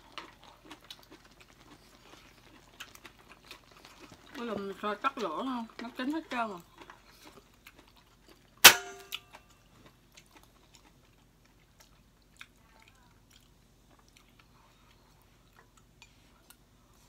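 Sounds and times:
chewing: 0.0 - 17.0.

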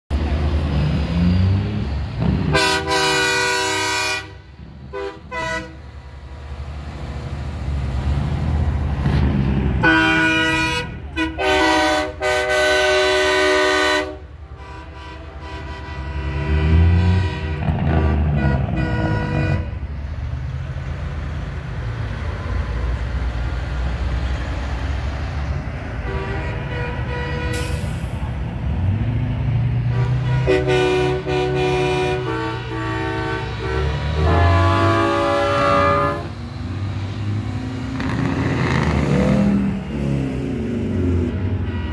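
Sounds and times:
diesel truck engines rumbling: 0.1 - 41.9
truck air horn blasts: 2.4 - 6.0, 9.8 - 19.9, 25.9 - 28.3, 29.8 - 36.5, 41.4 - 41.9.

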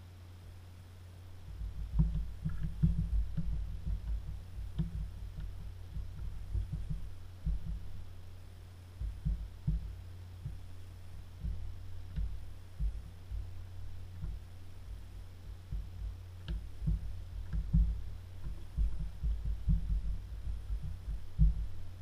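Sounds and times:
steady low hum: 0.0 - 22.0
rubber keys soft thumps: 9.0 - 22.0.

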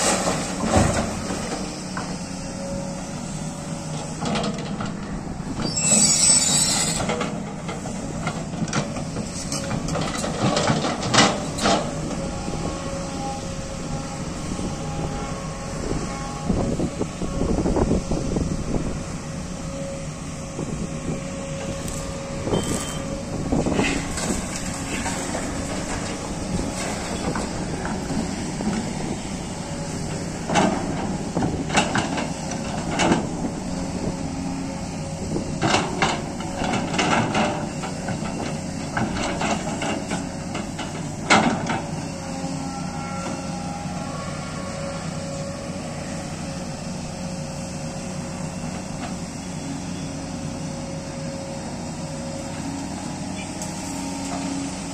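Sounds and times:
excavator diesel engine running: 0.0 - 54.9.

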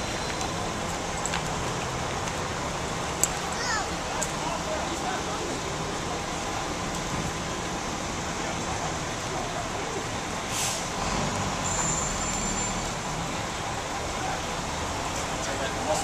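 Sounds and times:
crowd: 0.0 - 16.0
traffic noise: 0.0 - 16.0
air brakes hissing: 10.4 - 12.9
high squeal: 11.6 - 13.0.

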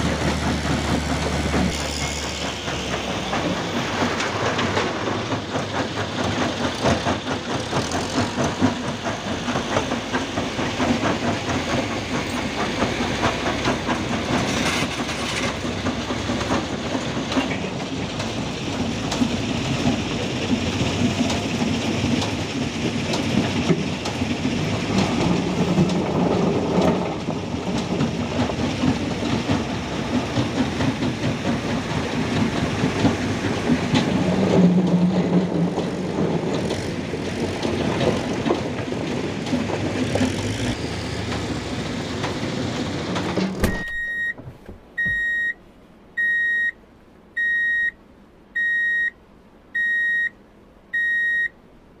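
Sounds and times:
diesel truck engine running: 0.0 - 45.6
electronic beeps: 43.7 - 44.4, 45.0 - 45.6, 46.2 - 46.8, 47.4 - 48.0.

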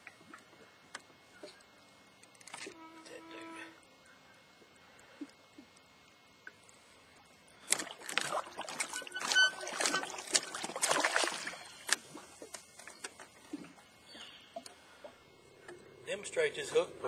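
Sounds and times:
fish thrashing and splashing in water: 7.6 - 13.8.

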